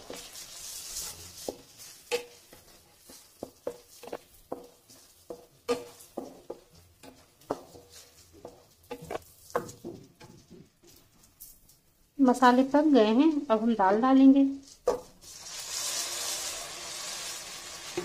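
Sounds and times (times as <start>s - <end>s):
spatula scraping a pan: 0.0s - 11.5s.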